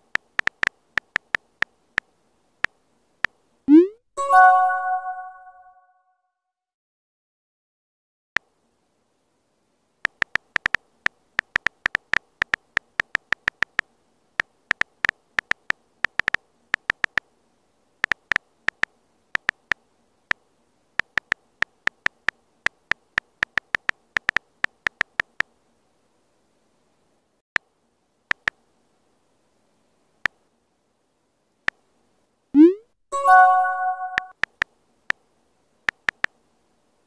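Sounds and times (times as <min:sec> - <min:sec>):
phone keyboard clicks: 0:00.0 - 0:02.1, 0:10.0 - 0:13.8, 0:14.7 - 0:17.2, 0:18.0 - 0:19.8, 0:21.0 - 0:25.5, 0:28.3 - 0:28.6, 0:34.1 - 0:34.7, 0:35.9 - 0:36.3.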